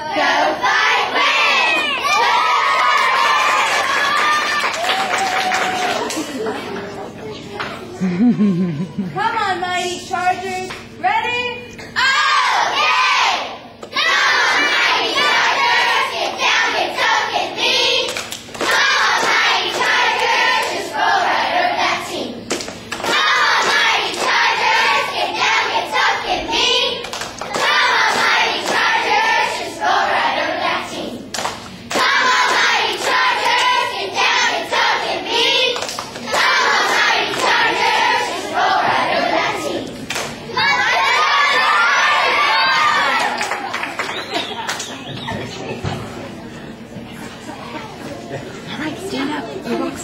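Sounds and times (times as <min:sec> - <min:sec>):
girls chanting a cheer: 0:00.0 - 0:04.9, 0:12.0 - 0:43.8
hand claps: 0:03.5 - 0:06.4, 0:18.1 - 0:20.0, 0:22.5 - 0:24.4, 0:27.0 - 0:28.9, 0:31.3 - 0:33.8, 0:35.7 - 0:37.6, 0:40.1 - 0:40.4, 0:43.2 - 0:45.3.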